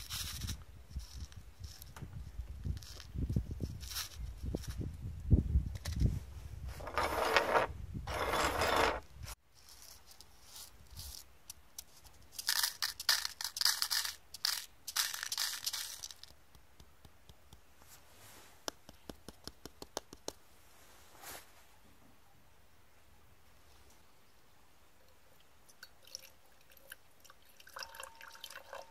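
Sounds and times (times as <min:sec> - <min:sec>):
rustling handling noise: 0:00.0 - 0:04.9, 0:05.8 - 0:16.4, 0:20.6 - 0:21.8
metal pins rattling into a cup: 0:12.4 - 0:16.3.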